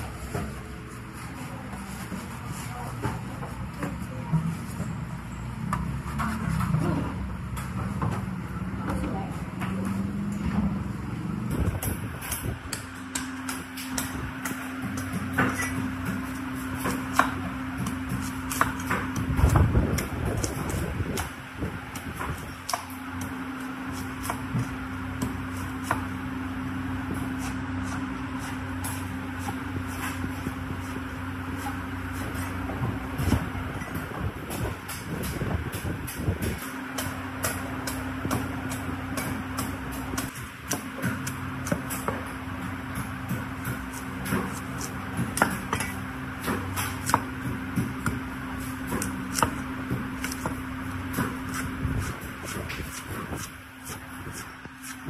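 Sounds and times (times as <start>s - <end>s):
steady machine hum: 0.0s - 55.0s
cleaver cutting coconut husk: 11.3s - 55.0s.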